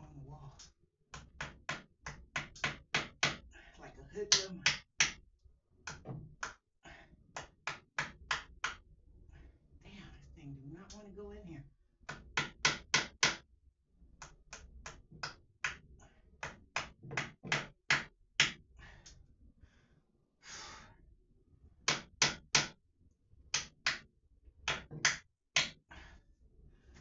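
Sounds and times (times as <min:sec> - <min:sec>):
hammer striking nail: 0:12.1 - 0:13.4, 0:16.4 - 0:18.6, 0:21.9 - 0:22.8.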